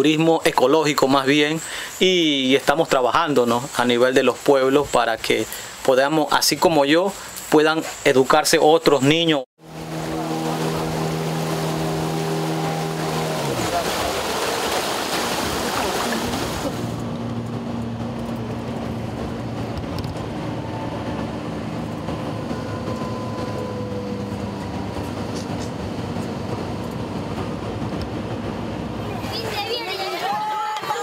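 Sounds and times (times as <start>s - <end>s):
wind: 0.0s - 31.0s
road vehicle engine and tyres: 9.6s - 31.0s
rushing water from boat: 9.6s - 31.0s.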